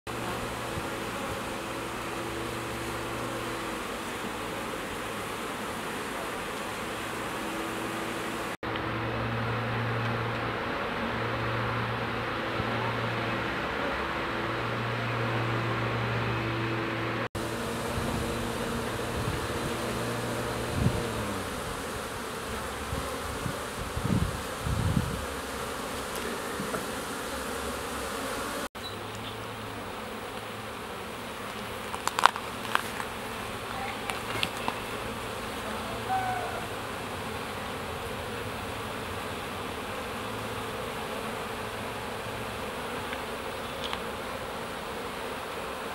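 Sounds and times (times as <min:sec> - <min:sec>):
honeybees buzzing: 0:00.1 - 0:45.9.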